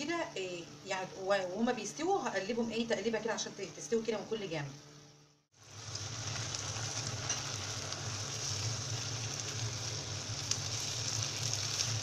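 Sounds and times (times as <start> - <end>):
low steady hum: 0.0 - 12.0
food sizzling in a frying pan: 5.5 - 12.0.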